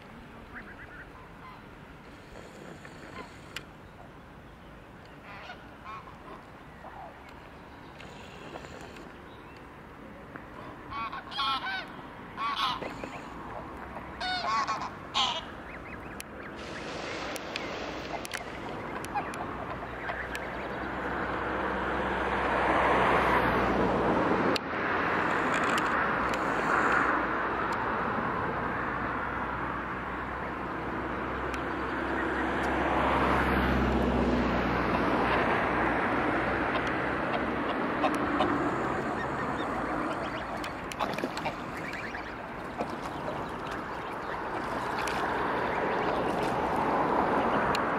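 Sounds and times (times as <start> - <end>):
rushing noise with low hum: 0.0 - 47.9
geese honking: 5.2 - 7.1, 10.9 - 21.4, 36.7 - 46.6.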